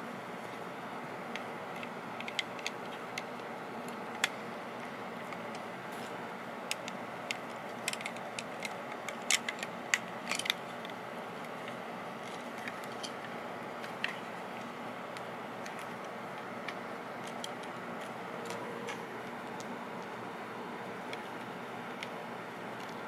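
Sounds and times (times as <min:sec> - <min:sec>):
plastic bricks clicking: 0:06.7 - 0:10.9.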